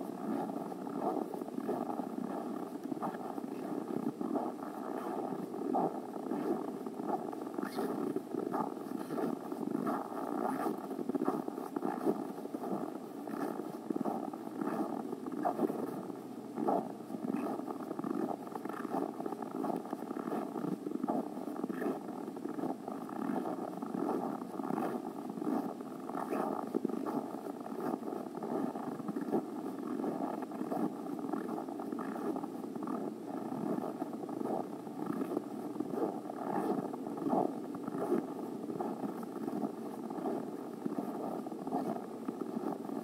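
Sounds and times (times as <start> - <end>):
footsteps crunching in snow: 0.2 - 22.6.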